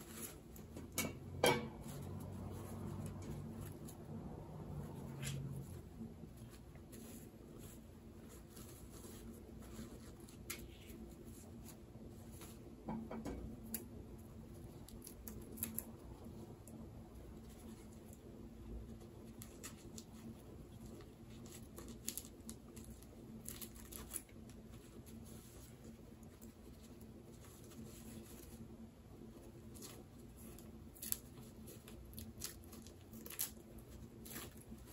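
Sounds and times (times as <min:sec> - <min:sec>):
low steady hum: 0:00.0 - 0:34.9
packaging rustling and crinkling: 0:19.2 - 0:28.7.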